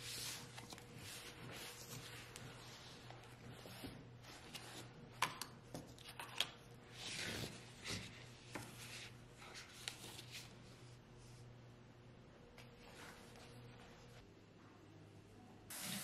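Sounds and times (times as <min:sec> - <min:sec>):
book pages turning: 0:00.0 - 0:10.6.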